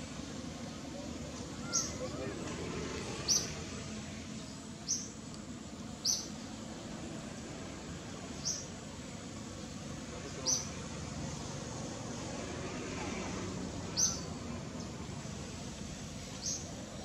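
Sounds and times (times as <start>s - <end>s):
low background noise: 0.0s - 17.0s
small bird chirping: 1.6s - 2.1s, 3.2s - 3.6s, 4.4s - 5.2s, 6.0s - 6.4s, 8.3s - 8.8s, 10.3s - 10.8s, 13.9s - 15.0s, 16.2s - 17.0s.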